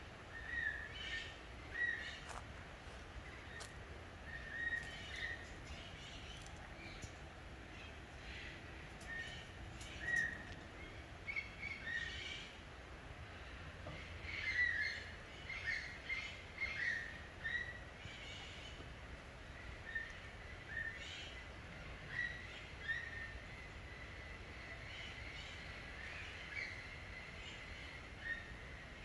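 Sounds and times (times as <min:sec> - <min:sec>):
birds calling: 0:03.1 - 0:12.6, 0:13.2 - 0:29.0.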